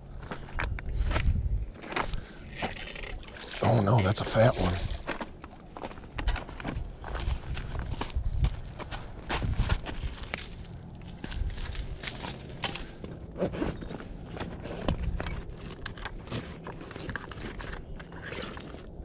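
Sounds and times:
crunching on gravel: 4.6 - 19.0.

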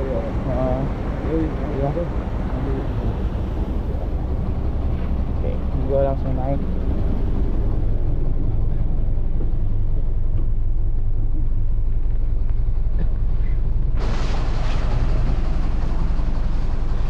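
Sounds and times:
vehicle engine rumble: 0.0 - 17.0
loud hiss: 14.0 - 17.0.

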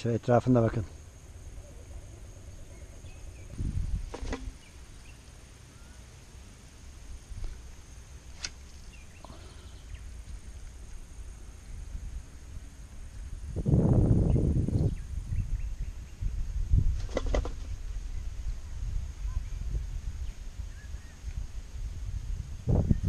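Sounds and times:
faint bird chirps: 0.3 - 6.1, 8.6 - 12.1, 14.2 - 16.4, 17.4 - 21.4.

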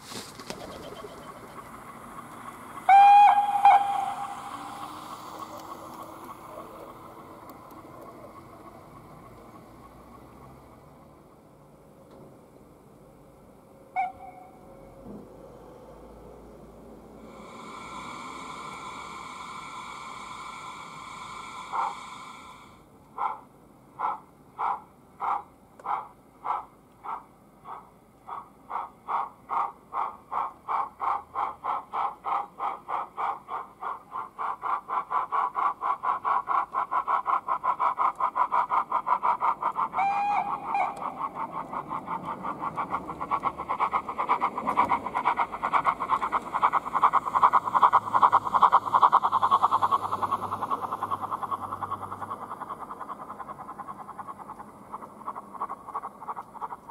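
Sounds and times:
model steam engine chuffing: 0.0 - 12.5, 13.2 - 56.9
short train whistle: 2.9 - 5.0, 14.0 - 14.7, 40.0 - 41.0.

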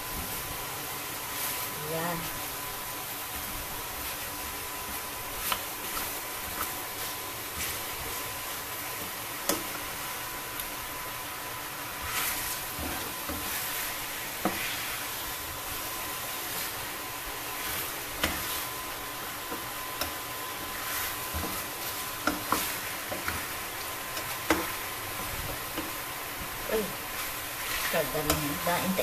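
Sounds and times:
chicken sizzling in a pan: 0.0 - 29.0
spatula scraping a pan: 12.0 - 15.2, 17.5 - 28.7.

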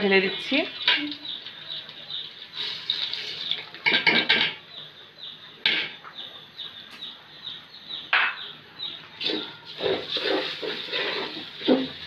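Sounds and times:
rice sizzling in hot oil: 2.2 - 3.8, 9.2 - 12.0
metal spatula scraping pot: 9.2 - 12.0.

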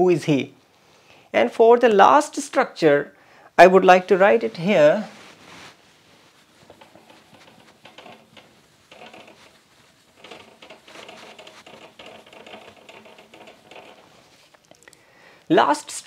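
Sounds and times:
marker squeaking on whiteboard: 6.6 - 14.5.

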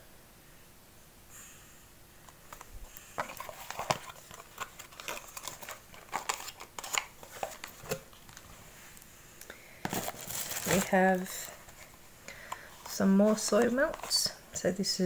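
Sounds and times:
packaging crinkling and rustling: 2.5 - 9.1, 9.8 - 14.4.

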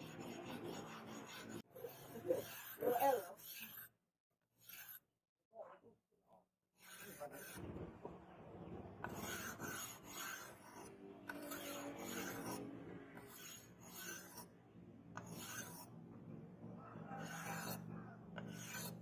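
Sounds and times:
sanding block rasping on steel blade: 0.0 - 4.0, 4.6 - 5.0, 6.8 - 7.6, 9.0 - 14.5, 15.1 - 15.9, 17.0 - 19.0.

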